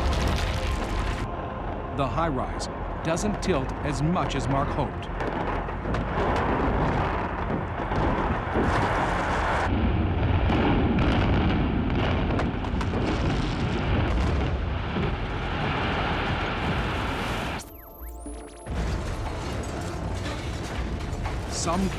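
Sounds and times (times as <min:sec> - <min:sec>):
heavy rumble of crashing concrete: 0:05.1 - 0:17.5, 0:18.7 - 0:21.9.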